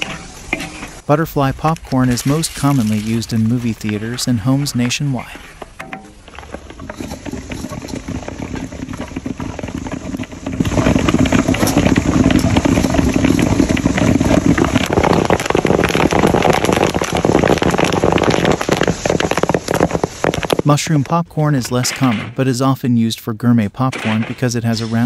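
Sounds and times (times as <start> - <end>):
popcorn popping in a pan: 5.8 - 22.1.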